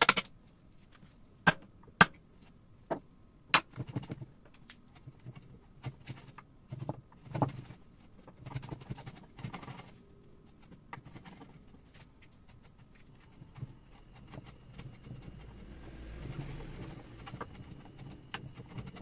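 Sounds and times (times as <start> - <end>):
chisel scraping and shaving wood: 10.8 - 19.0.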